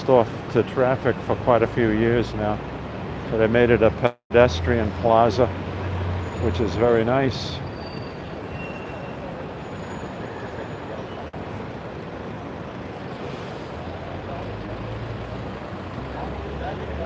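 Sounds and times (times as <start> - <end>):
steady traffic noise: 0.0 - 17.0
heavy vehicle engine rumble: 0.1 - 17.0
crowd hubbub: 8.4 - 17.0.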